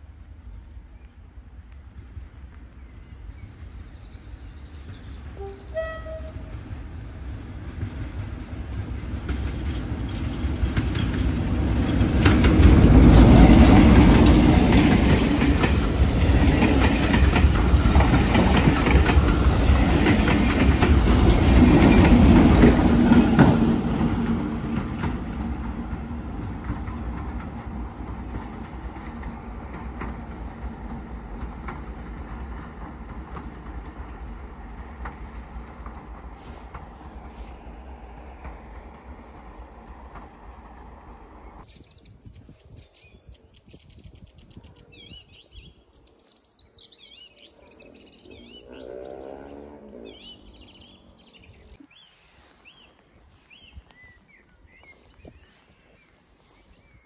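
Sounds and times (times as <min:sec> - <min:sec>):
diesel train engine: 0:03.8 - 0:41.7
wheels clicking over rail joints: 0:08.8 - 0:41.2.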